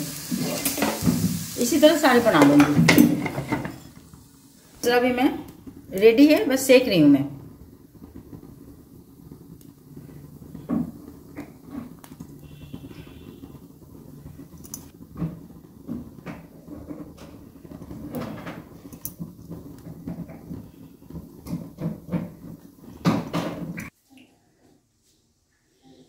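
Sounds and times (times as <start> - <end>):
clatter on stove grate: 0.3 - 1.4, 2.2 - 4.2, 14.4 - 23.8.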